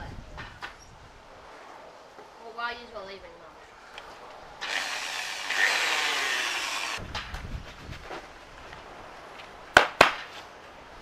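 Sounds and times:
electric drill whirring: 0:04.6 - 0:07.0.

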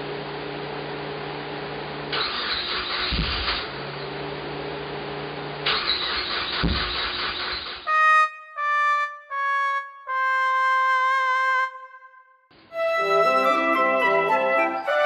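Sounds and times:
engine cranking: 0:02.1 - 0:03.7, 0:05.6 - 0:07.9.

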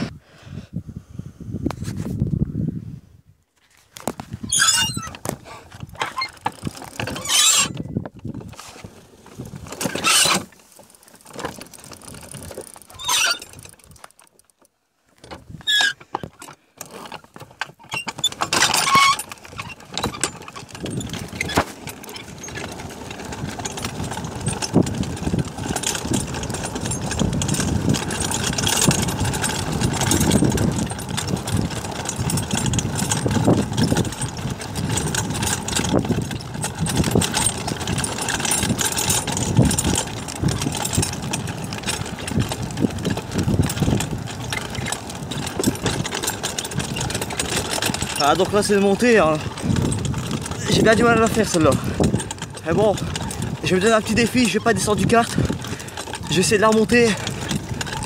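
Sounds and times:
kart rattling over dirt track: 0:04.0 - 0:58.0
short squeaks and knocks: 0:04.4 - 0:08.8, 0:09.7 - 0:10.5, 0:12.6 - 0:13.8, 0:15.2 - 0:22.9, 0:32.1 - 0:48.4.

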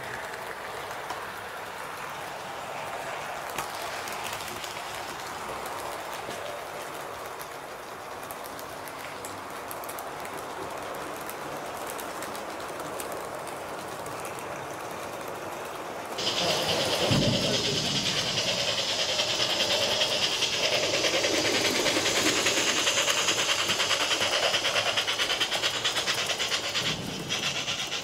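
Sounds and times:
model train rolling: 0:00.0 - 0:28.0
wheel clicks: 0:16.2 - 0:28.0.

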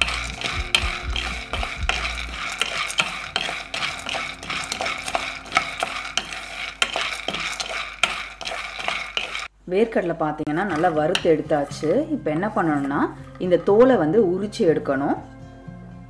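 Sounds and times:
peanuts rattling in a pan: 0:00.0 - 0:09.5, 0:10.6 - 0:12.0
wooden spatula stirring: 0:00.0 - 0:09.5, 0:10.5 - 0:13.9.

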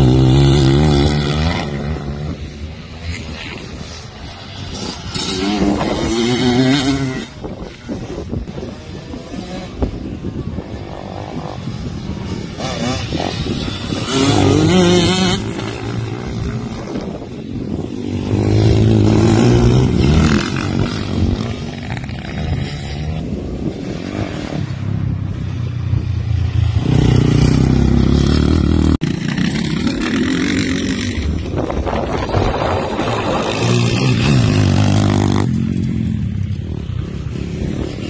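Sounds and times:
dirt bike engines revving: 0:00.0 - 0:38.0.

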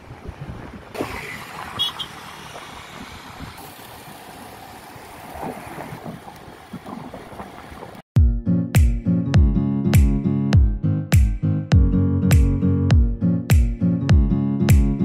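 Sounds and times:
wind rushing over microphone: 0:00.0 - 0:04.3
scooter road noise: 0:00.0 - 0:08.0.

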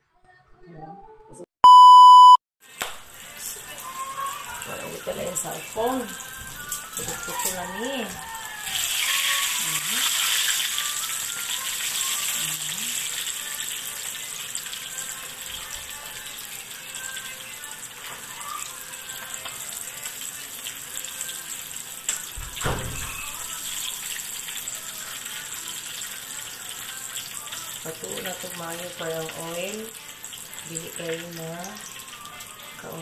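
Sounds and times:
oil sizzling in frying pan: 0:03.1 - 0:22.6, 0:23.2 - 0:33.0.

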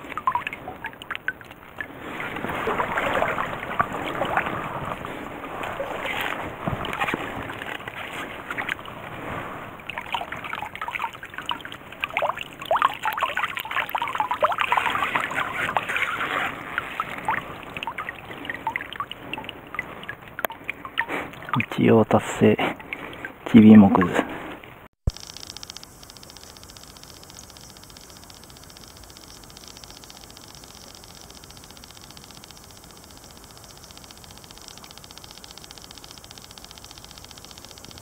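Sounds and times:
stream water splashing: 0:00.0 - 0:24.2
wet leaves crackling in net: 0:01.6 - 0:20.0.

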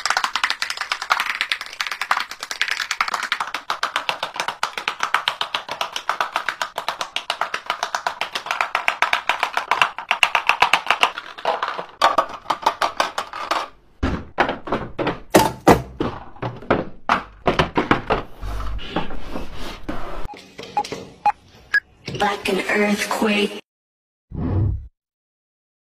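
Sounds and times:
heavier knocks: 0:14.0 - 0:18.2.

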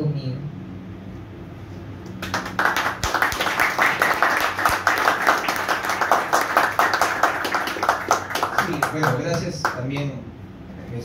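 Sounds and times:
people clapping: 0:02.1 - 0:10.2.

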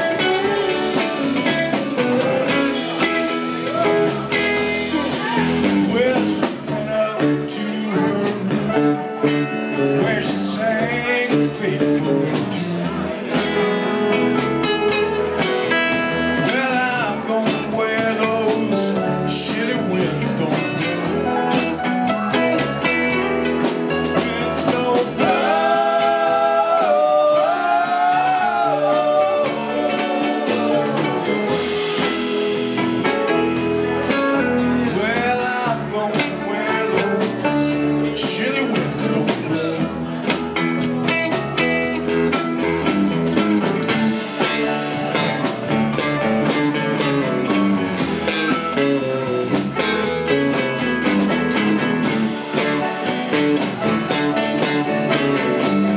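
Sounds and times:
drum kit beat: 0:00.0 - 0:55.9
electric guitars: 0:00.0 - 0:55.9
keyboard: 0:00.0 - 0:55.9.

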